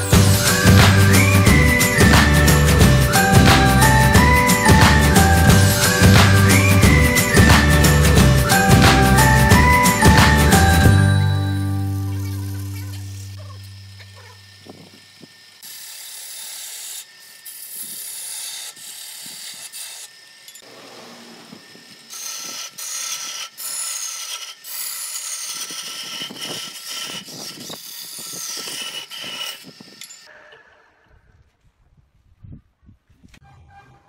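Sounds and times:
gouge cutting wood on a lathe: 0:12.0 - 0:30.2.

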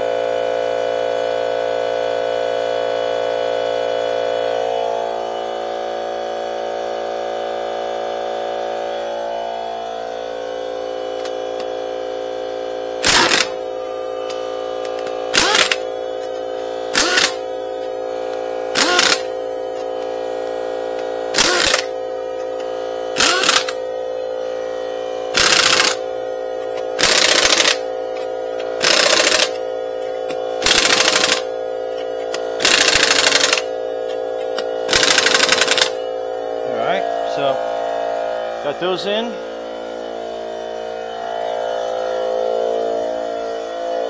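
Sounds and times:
steady hum: 0:00.0 - 0:44.0
impact wrench hammering: 0:13.0 - 0:20.1, 0:20.9 - 0:23.8, 0:25.3 - 0:36.1.

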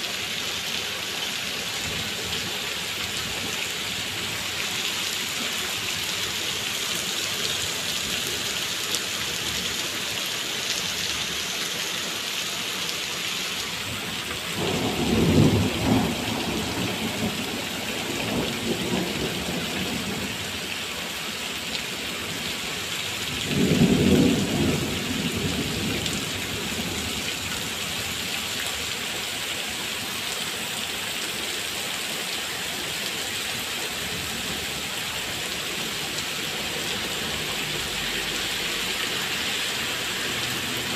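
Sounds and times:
heavy rain on wet paving: 0:00.0 - 0:40.9
thunder rolling: 0:14.6 - 0:17.4.

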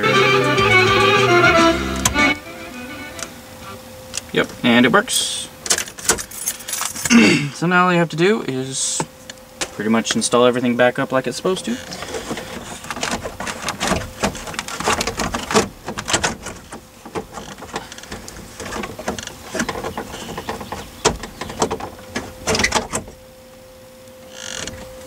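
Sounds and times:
faint steady tone: 0:20.0 - 0:25.0.

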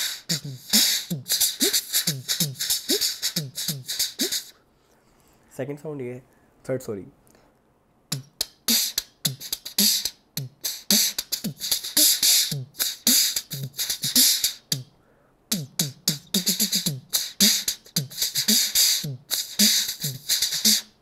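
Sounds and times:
beatboxing: 0:00.0 - 0:04.6, 0:08.1 - 0:21.0.

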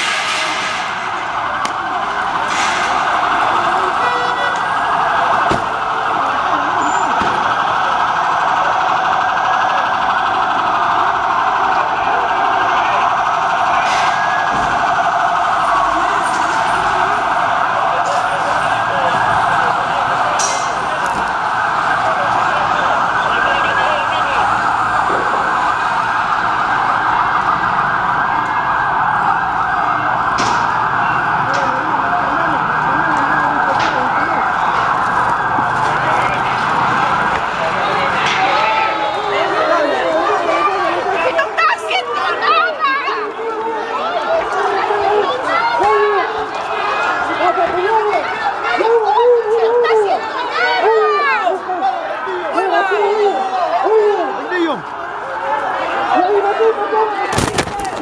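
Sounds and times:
police siren wailing: 0:00.0 - 0:58.0
people shouting: 0:37.7 - 0:58.0.

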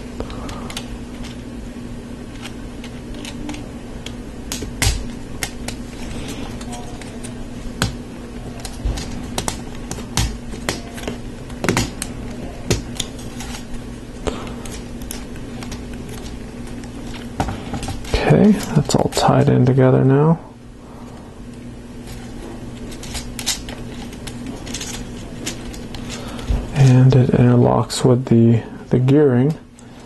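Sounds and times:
steady low hum: 0:00.0 - 0:30.0
plastic pieces clicking together: 0:02.3 - 0:05.8.

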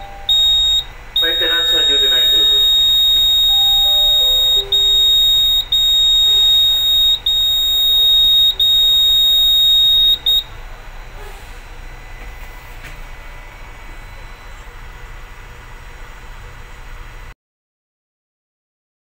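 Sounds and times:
high-pitched alarm buzzer: 0:00.0 - 0:12.1
room noise: 0:00.0 - 0:17.3.

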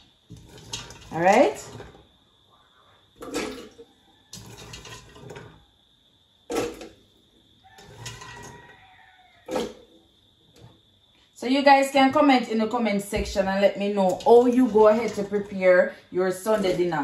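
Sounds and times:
coconut pieces clunking into blender: 0:03.2 - 0:05.7, 0:06.5 - 0:07.0, 0:09.4 - 0:09.9.

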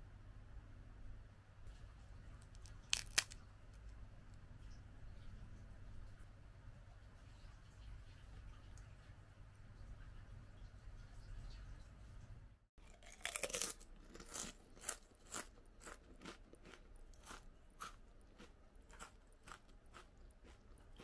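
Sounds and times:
potato chips crunching: 0:02.4 - 0:03.9, 0:12.8 - 0:21.0.

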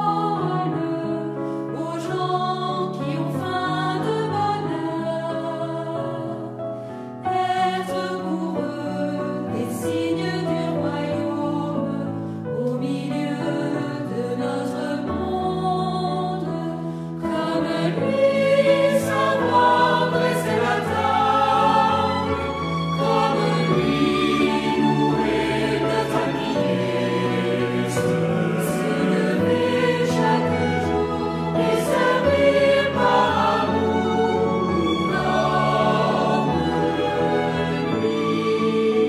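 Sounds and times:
choir singing held chords: 0:00.0 - 0:06.1, 0:17.2 - 0:39.0.

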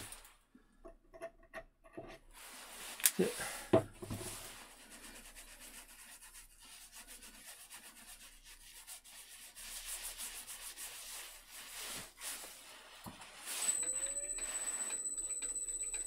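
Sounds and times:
hand rubbing on wooden plate: 0:04.2 - 0:15.1.

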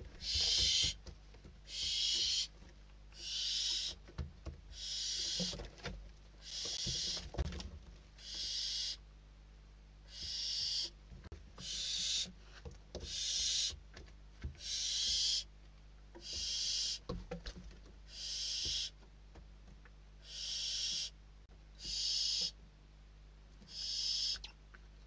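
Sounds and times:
owl chicks hissing calls: 0:00.2 - 0:01.0, 0:01.7 - 0:02.5, 0:03.2 - 0:04.0, 0:04.7 - 0:05.6, 0:06.4 - 0:07.3, 0:08.2 - 0:09.0, 0:10.1 - 0:11.0, 0:11.6 - 0:13.8, 0:14.6 - 0:15.5, 0:16.2 - 0:17.1, 0:18.1 - 0:19.0, 0:20.2 - 0:21.2, 0:21.8 - 0:22.6, 0:23.7 - 0:24.6.

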